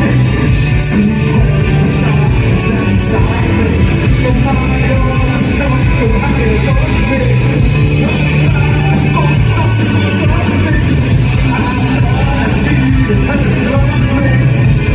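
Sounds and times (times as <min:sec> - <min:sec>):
bass guitar: 0:00.0 - 0:14.9
drums: 0:00.0 - 0:14.9
electric guitars strumming: 0:00.0 - 0:14.9.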